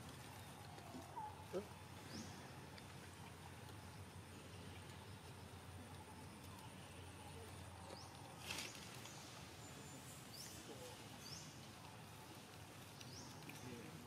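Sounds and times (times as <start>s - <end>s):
low steady hum: 0.0s - 14.0s
brief rustle: 8.4s - 9.2s.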